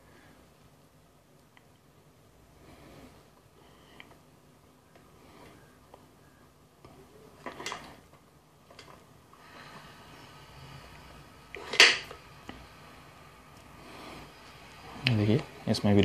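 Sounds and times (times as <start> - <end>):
probes and wires handling noise: 6.8 - 16.0.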